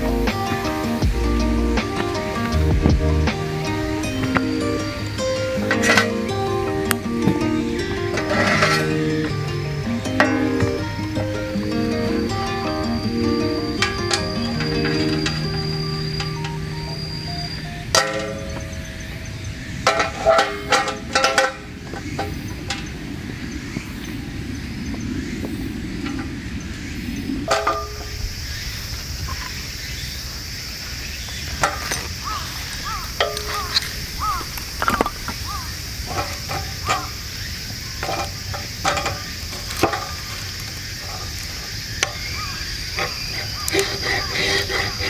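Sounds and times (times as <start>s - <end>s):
low rumble: 0.0s - 18.0s
steady high tone: 0.0s - 19.6s
ringing metal knocks: 0.0s - 23.0s, 27.4s - 28.6s, 31.5s - 45.0s
steel parts clanking: 0.0s - 23.0s, 27.4s - 29.5s, 31.3s - 45.0s
wood and metal clacks: 1.8s - 9.5s, 13.8s - 22.9s, 27.5s - 28.2s, 31.6s - 45.0s.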